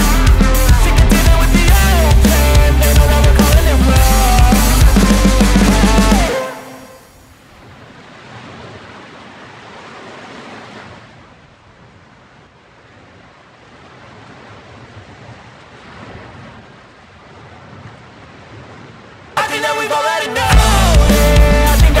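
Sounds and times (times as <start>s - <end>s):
ocean surf breaking on beach: 4.3s - 20.5s.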